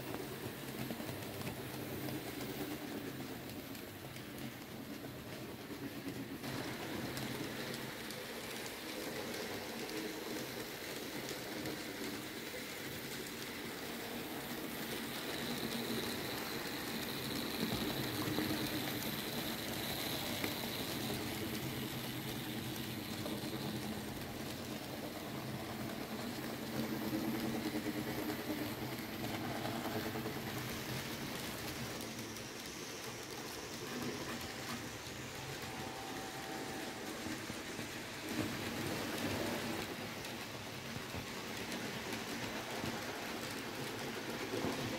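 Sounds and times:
model train motors whirring: 0:00.0 - 0:44.9
tiny wheels rattling over track: 0:00.0 - 0:44.9.

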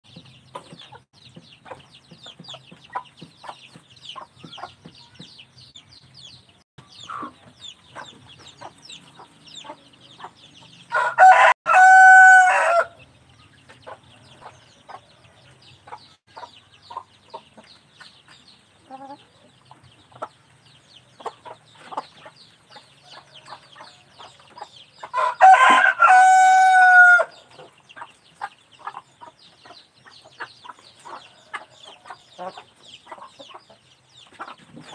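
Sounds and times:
rooster crowing: 0:10.9 - 0:13.0, 0:25.1 - 0:27.3.

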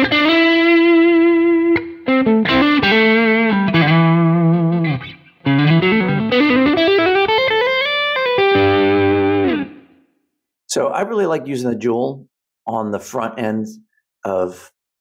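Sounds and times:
electric guitar lead line: 0:00.0 - 0:10.0.

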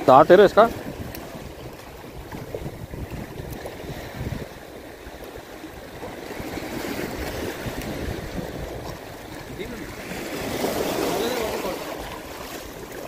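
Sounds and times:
small waves lapping on shore: 0:00.0 - 0:13.0
wind rumble on microphone: 0:00.0 - 0:13.0.

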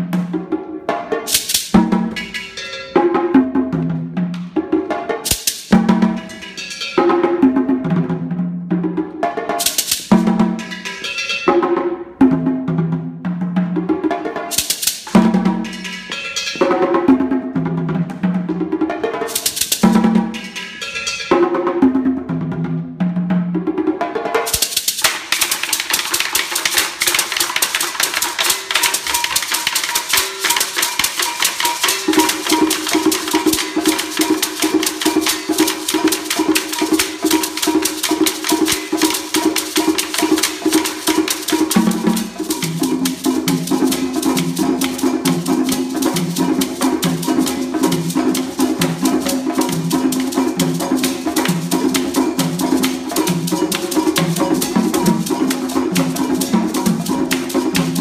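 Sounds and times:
hand drum ensemble rhythm: 0:00.0 - 0:58.0
low repeating drum part: 0:12.2 - 0:23.7, 0:24.5 - 0:58.0.

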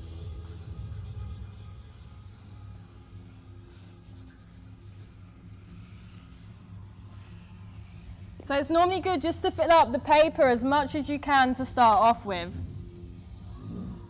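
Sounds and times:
background music: 0:00.0 - 0:14.0
marker drawing on paper: 0:00.4 - 0:10.5, 0:13.0 - 0:13.6.

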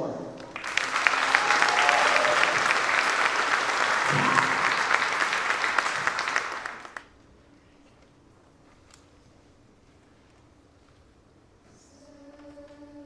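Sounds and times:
audience applauding: 0:00.4 - 0:07.1.

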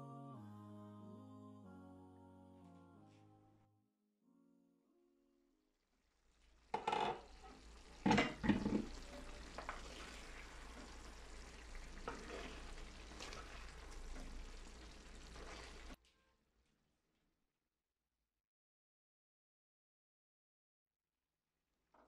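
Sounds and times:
curry sizzling in a pan: 0:05.9 - 0:16.0
glass lid clunking on pan: 0:06.7 - 0:07.3, 0:08.0 - 0:09.0
spoon scraping a pan: 0:06.8 - 0:13.6.

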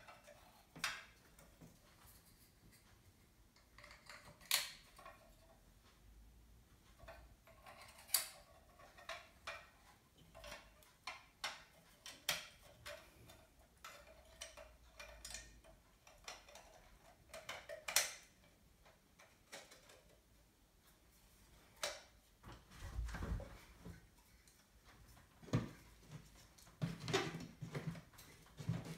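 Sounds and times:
small plastic and metal parts clicking: 0:07.0 - 0:20.2.

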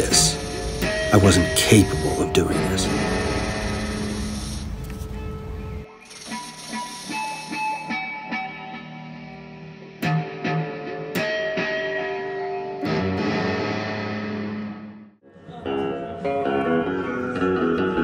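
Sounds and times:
plucked guitar music: 0:07.9 - 0:18.0.

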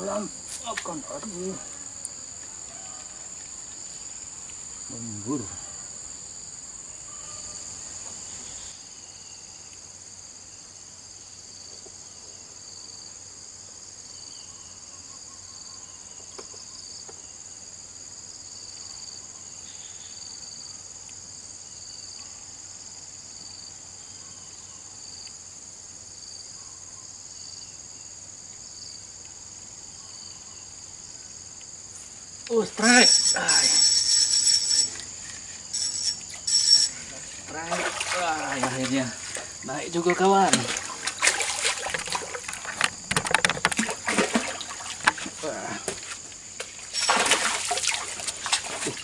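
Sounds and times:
insect high-pitched drone: 0:00.0 - 0:49.0
lower pulsing insect call: 0:00.0 - 0:49.0.

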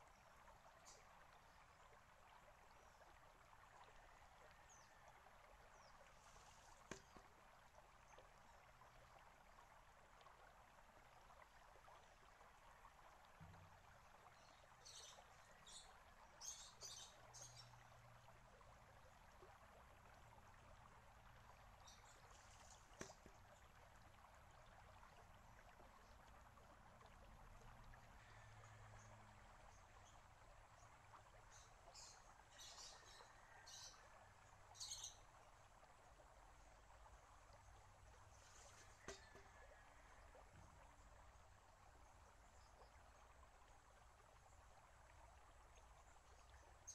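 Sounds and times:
water trickling: 0:00.0 - 0:46.9
small birds chirping: 0:14.4 - 0:17.8.

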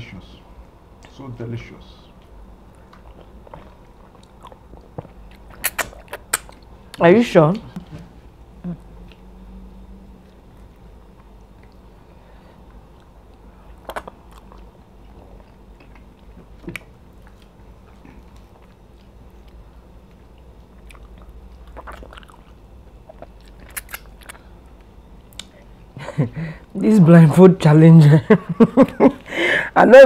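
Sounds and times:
low steady hum: 0:00.0 - 0:30.0
people chewing and eating: 0:02.1 - 0:07.0, 0:07.7 - 0:26.7.

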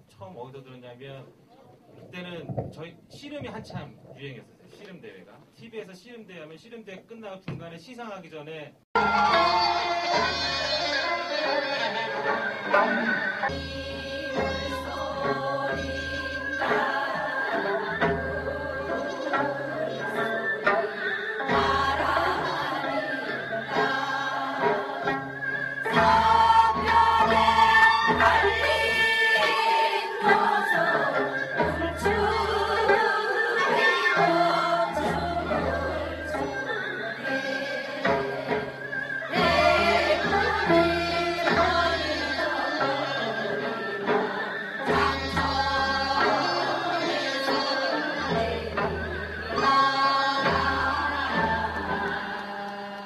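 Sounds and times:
women singing folk song in chorus: 0:09.0 - 0:53.0.

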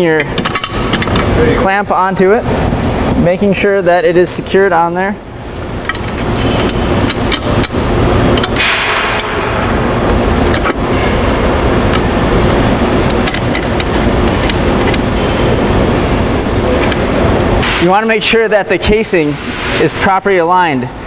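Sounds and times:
machinery hum and rush: 0:00.0 - 0:21.0.

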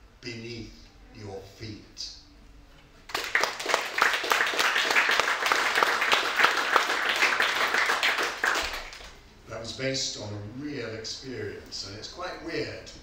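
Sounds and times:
audience applauding: 0:03.1 - 0:09.2.

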